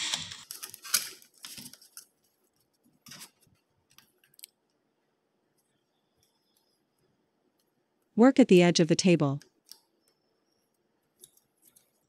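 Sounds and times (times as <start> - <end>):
aluminum sheet crinkling: 0.0 - 4.5.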